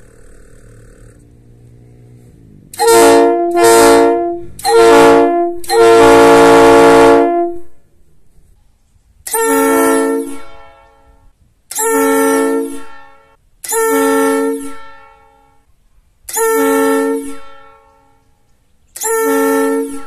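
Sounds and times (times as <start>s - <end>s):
train air horn blasts: 2.2s - 7.8s, 9.3s - 15.7s, 16.3s - 18.2s, 19.0s - 20.0s.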